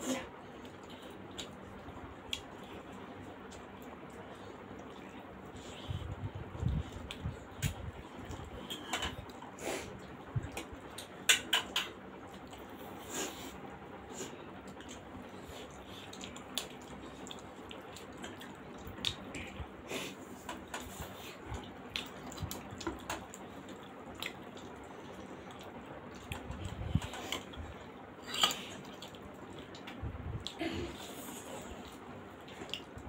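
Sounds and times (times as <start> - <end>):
wet chewing and lip-smacking: 0.6 - 19.8, 20.4 - 30.6, 31.4 - 33.0
sharp clicks and smacks: 10.5 - 12.6.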